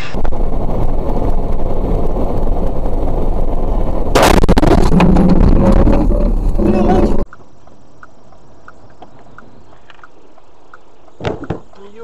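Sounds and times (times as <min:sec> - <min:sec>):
road and engine rumble: 0:00.0 - 0:12.0
vehicle crash impact: 0:04.0 - 0:07.2.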